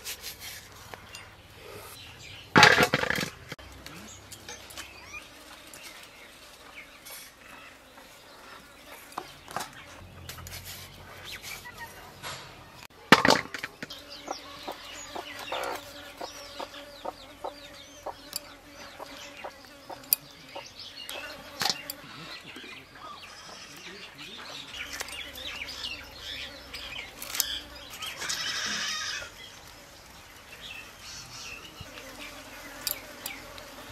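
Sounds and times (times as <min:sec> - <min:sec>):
chickens clucking: 0:08.4 - 0:29.4.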